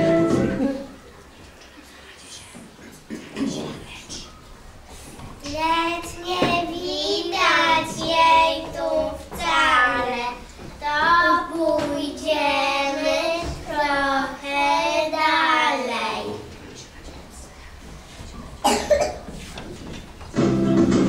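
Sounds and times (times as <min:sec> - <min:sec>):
child singing: 0:05.4 - 0:16.5.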